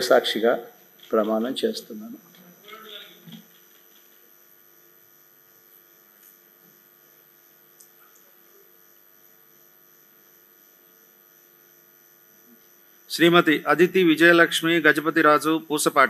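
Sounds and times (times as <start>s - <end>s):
faint mains hum: 0.0s - 16.0s.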